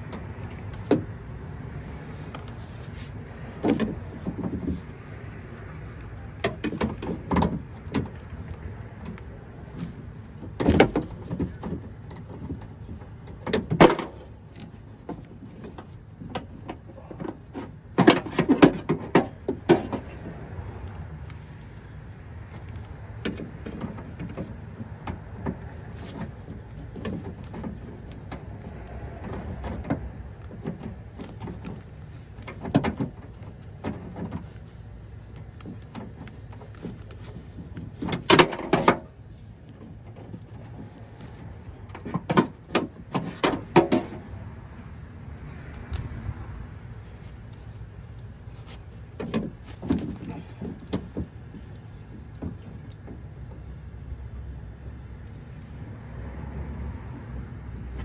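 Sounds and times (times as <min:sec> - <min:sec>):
metal clicks and knocks in car door: 0:06.4 - 0:20.3, 0:23.2 - 0:34.7, 0:35.6 - 0:41.0, 0:41.9 - 0:44.2, 0:49.1 - 0:53.6.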